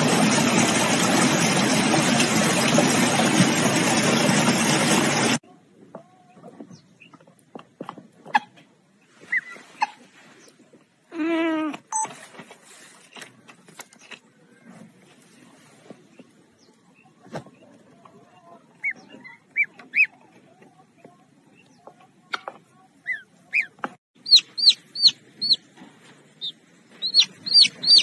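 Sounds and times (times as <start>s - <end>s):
gosling peeping: 18.3s - 20.3s, 21.6s - 28.0s.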